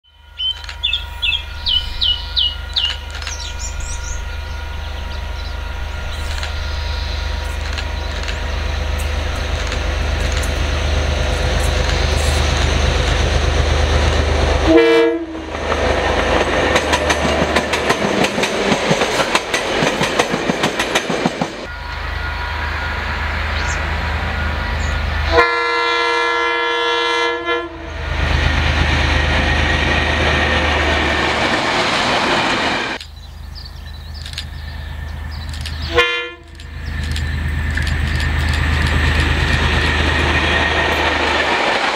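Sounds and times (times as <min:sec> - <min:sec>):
train horn blast: 0:00.0 - 0:09.4, 0:14.2 - 0:15.7, 0:21.6 - 0:28.1, 0:35.8 - 0:36.6
locomotive rumbling: 0:00.2 - 0:41.9
train clattering past: 0:00.4 - 0:41.9.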